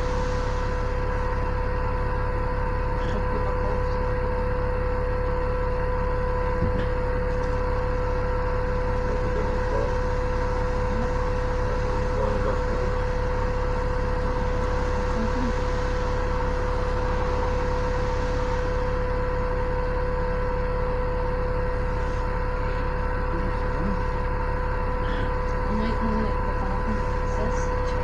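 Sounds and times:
bus engine idling: 0.0 - 28.0
steady mid-pitched tone: 7.8 - 28.0.

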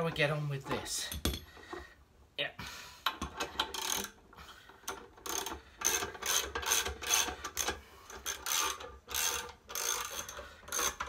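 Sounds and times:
socket ratchet strokes: 3.1 - 11.0.

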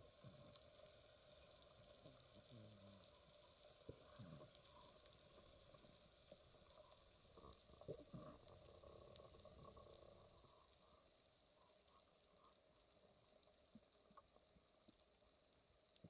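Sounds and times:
small clicks and crackles: 0.0 - 16.0.

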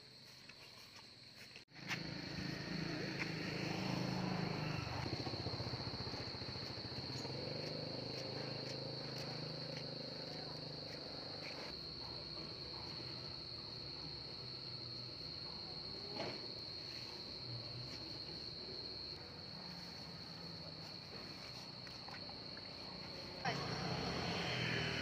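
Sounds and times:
cricket trill: 0.0 - 25.0
motorbike engine idling: 2.0 - 11.3.

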